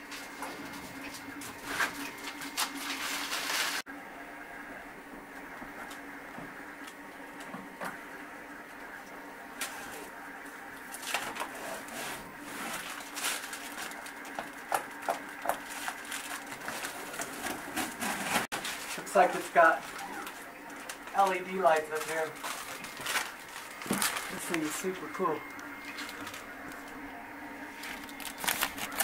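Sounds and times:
faint steady hum: 0:00.0 - 0:29.0
plastic film peeling crackle: 0:12.4 - 0:27.0, 0:27.7 - 0:29.0.

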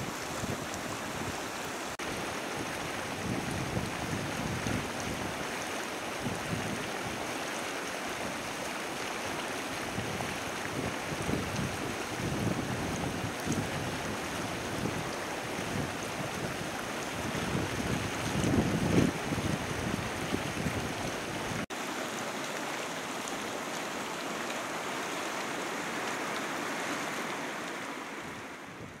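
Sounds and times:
wind on microphone: 0:00.0 - 0:01.6, 0:02.6 - 0:05.5, 0:06.1 - 0:07.2, 0:09.8 - 0:21.6, 0:28.2 - 0:29.0
hot spring water bubbling: 0:00.0 - 0:29.0.

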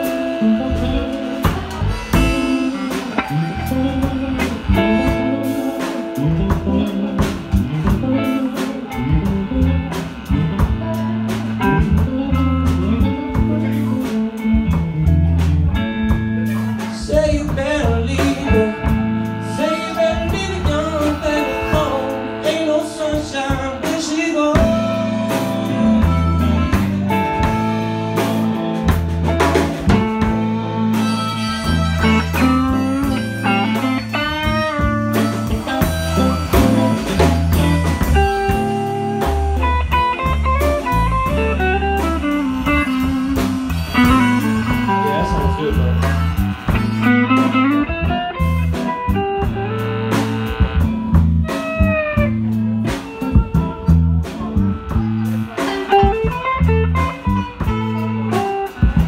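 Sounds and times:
bass guitar: 0:00.0 - 0:59.0
drum kit: 0:00.0 - 0:59.0
electric guitar lead lines: 0:00.0 - 0:59.0.

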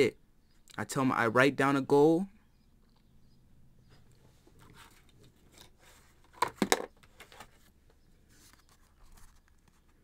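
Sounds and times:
faint rustling: 0:07.0 - 0:10.0.

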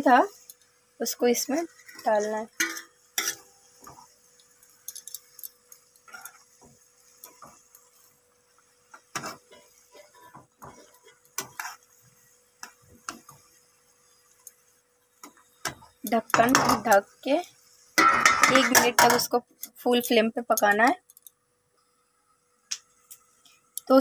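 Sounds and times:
spatula scraping frying pan: 0:01.4 - 0:04.2, 0:04.9 - 0:13.7.

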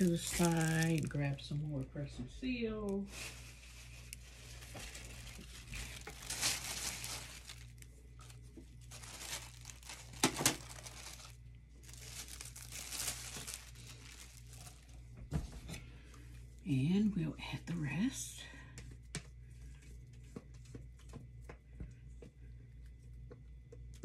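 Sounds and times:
plastic wrap tearing and crinkling: 0:00.0 - 0:01.4, 0:03.1 - 0:15.1.

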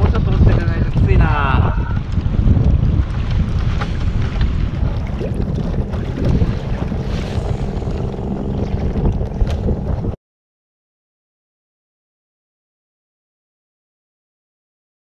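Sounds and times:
choppy water lapping: 0:00.0 - 0:10.2
wind buffeting microphone: 0:00.0 - 0:10.2.

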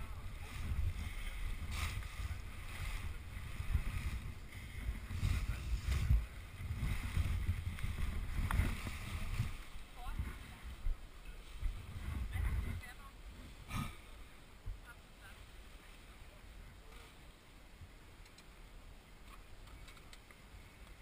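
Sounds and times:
paraglider wing rustling: 0:00.0 - 0:14.0
low rumble of handling and wind: 0:00.0 - 0:21.0.

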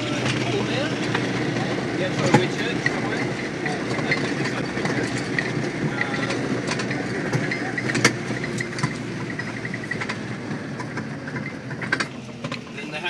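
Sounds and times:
body and load rattling: 0:00.0 - 0:13.0
vehicle engine and road noise: 0:00.0 - 0:13.0.

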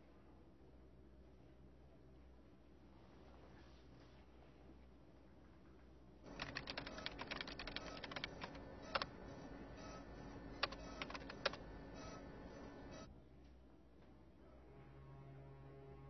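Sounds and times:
faint steady hum: 0:00.0 - 0:16.0
computer keyboard typing: 0:06.3 - 0:13.1.

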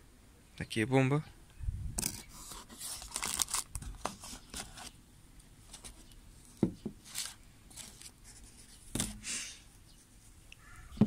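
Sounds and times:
cardboard box rustling and scraping: 0:02.2 - 0:05.0, 0:07.0 - 0:09.2.

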